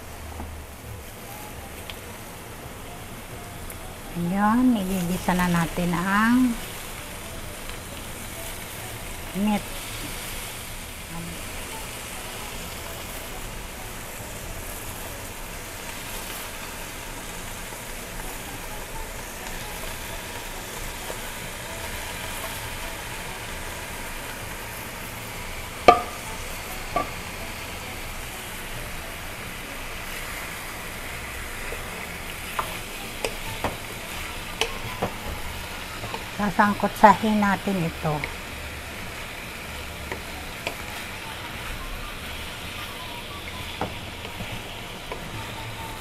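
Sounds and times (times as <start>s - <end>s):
pork sizzling in a pan: 0.0s - 46.0s
wooden spatula knocking on pan: 25.8s - 26.2s, 26.9s - 27.2s, 32.6s - 33.8s, 34.6s - 36.2s, 43.7s - 45.5s.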